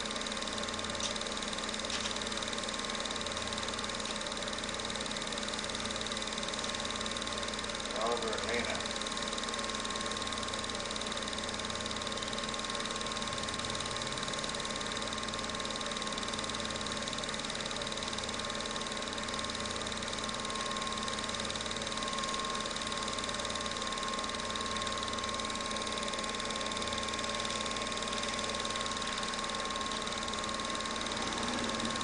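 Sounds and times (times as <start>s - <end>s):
film projector whirring: 0.0s - 32.0s
low pulsing motor hum: 0.0s - 32.0s.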